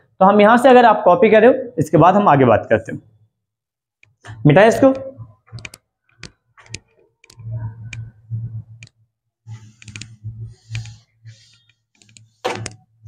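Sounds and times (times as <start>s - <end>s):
duster rubbing chalkboard: 9.5s - 12.5s.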